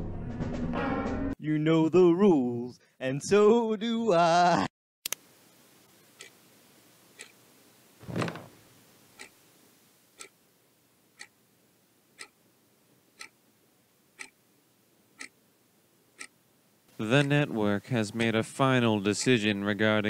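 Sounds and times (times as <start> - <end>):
clock ticking: 6.2 - 6.4, 7.2 - 7.4, 9.2 - 9.4, 10.2 - 10.4, 11.2 - 11.4, 12.2 - 12.4, 13.2 - 13.4, 14.2 - 14.4, 15.2 - 15.4, 16.1 - 16.3, 17.0 - 19.6.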